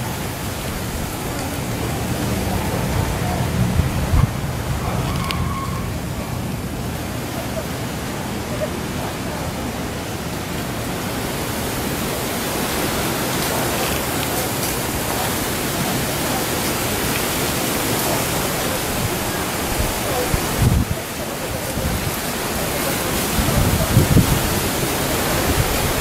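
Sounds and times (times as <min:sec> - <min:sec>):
steady rushing hiss: 0:00.0 - 0:26.0.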